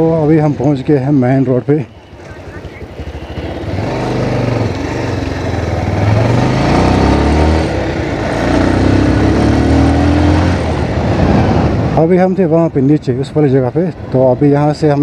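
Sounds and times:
motorcycle engine accelerating: 1.9s - 12.0s
steady rushing noise: 2.2s - 15.0s.

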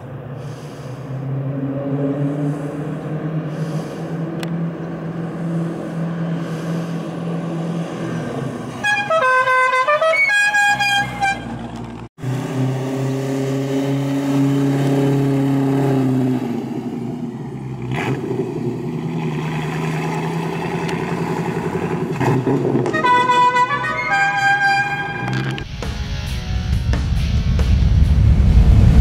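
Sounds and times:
car engine running: 0.0s - 9.2s
car horn toots: 8.7s - 11.7s, 22.8s - 25.6s.

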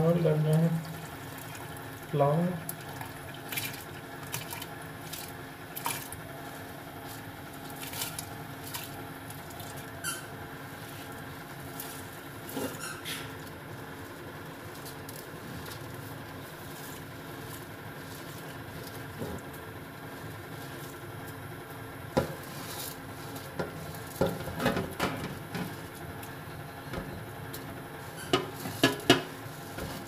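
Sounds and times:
short rising squeaks: 10.0s - 10.4s, 12.6s - 13.4s.

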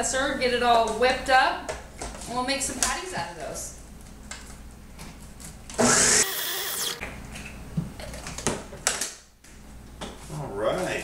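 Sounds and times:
blender motor pulse: 5.7s - 7.0s.

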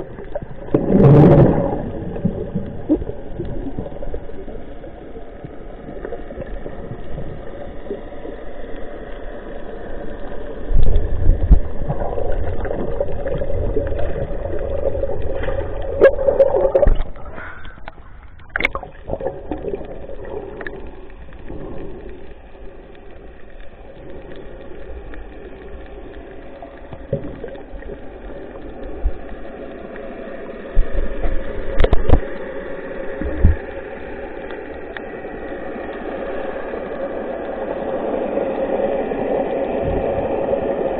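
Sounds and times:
water sloshing and gurgling: 0.0s - 40.9s.

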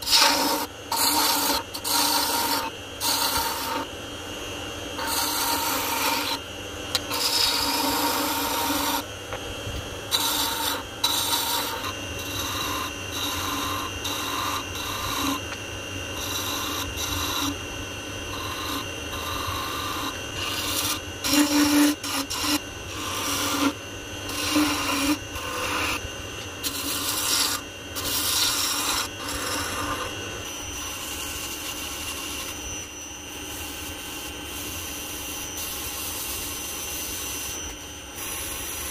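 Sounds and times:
sandpaper rubbing spinning wood: 0.0s - 3.8s, 5.0s - 6.4s, 7.0s - 9.0s, 10.1s - 15.4s, 16.2s - 17.6s, 18.3s - 26.0s, 26.6s - 30.2s, 30.8s - 32.6s
gouge scraping spinning wood: 0.0s - 3.9s, 5.0s - 9.1s, 10.1s - 32.8s
lathe running whine: 0.0s - 38.9s.

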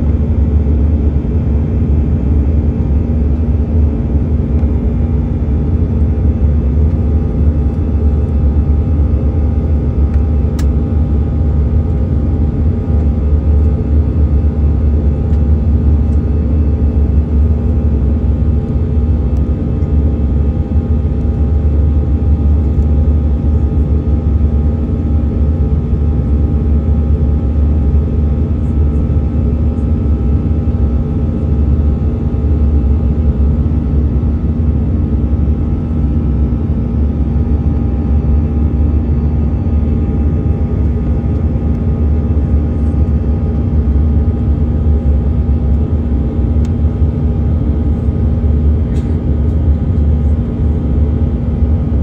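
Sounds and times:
jet cabin airflow rumble: 0.0s - 52.0s
turbofan engines humming: 0.0s - 52.0s.

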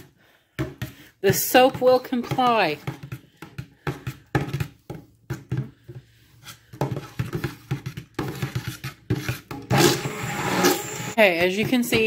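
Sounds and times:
spoon stirring thick batter: 0.0s - 12.0s.

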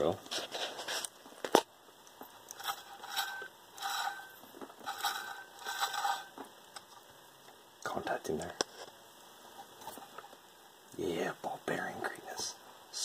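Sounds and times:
scraping rustles of cover: 0.3s - 1.1s.

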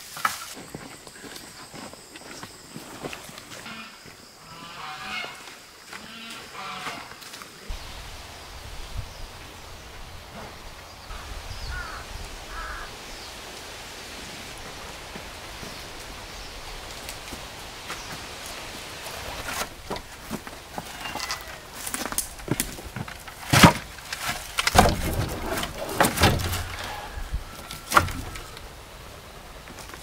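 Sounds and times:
steady hiss: 7.3s - 30.0s.

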